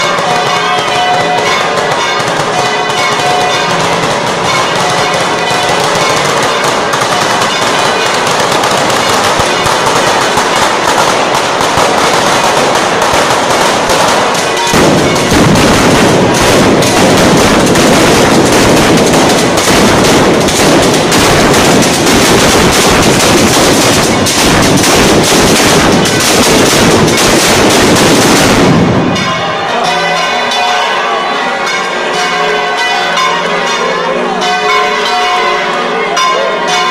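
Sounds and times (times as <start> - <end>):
firecrackers banging and crackling: 0.0 - 30.8.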